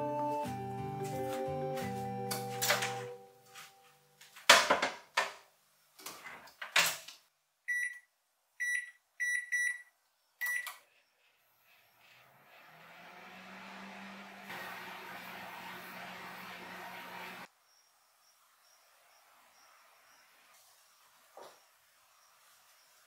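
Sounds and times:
keypad beeps: 7.7 - 8.0, 8.6 - 10.7
microwave oven humming: 12.8 - 17.5.

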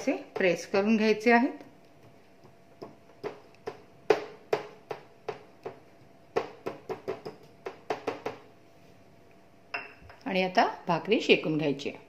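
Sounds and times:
steel bowl tapping on dough: 0.0 - 8.5.

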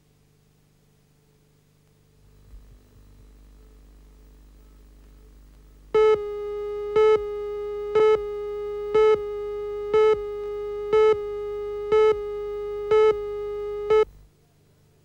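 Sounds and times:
steady line-up tone: 3.7 - 14.2
countdown beeps: 6.9 - 14.1.

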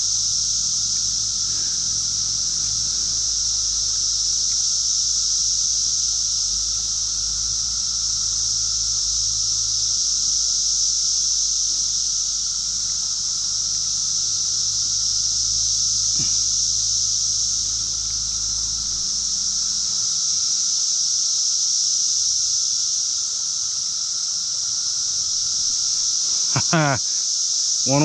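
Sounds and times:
low steady rumble: 0.0 - 20.3
high-pitched insect chorus: 0.0 - 28.0.

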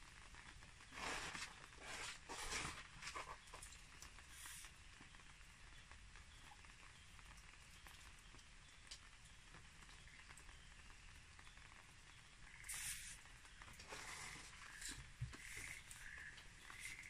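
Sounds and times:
faint background hiss: 0.0 - 17.0
soft ticks: 6.4 - 10.5.

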